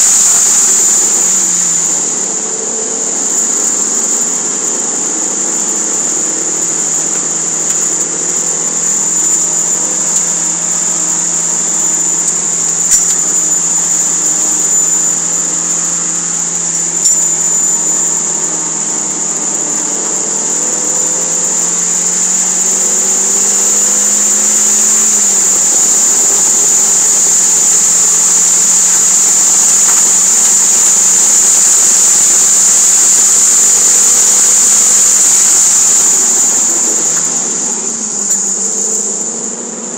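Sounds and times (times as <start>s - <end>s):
high-pitched whine: 0.0s - 39.9s.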